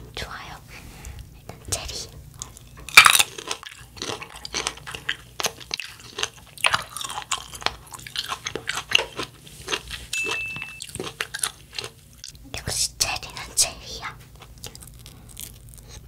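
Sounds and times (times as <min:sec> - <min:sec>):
wet crackly chewing: 0:02.3 - 0:12.5, 0:14.2 - 0:16.0.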